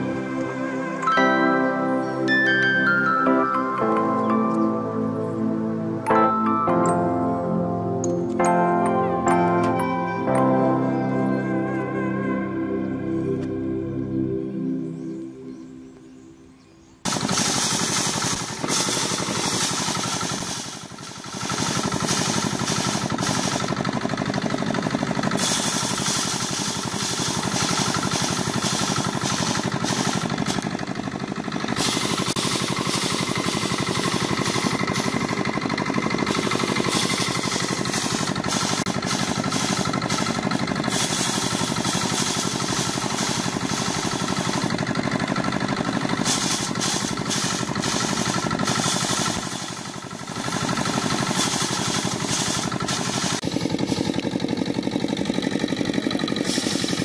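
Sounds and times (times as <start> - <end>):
rice thresher drum rattling: 17.0 - 57.0.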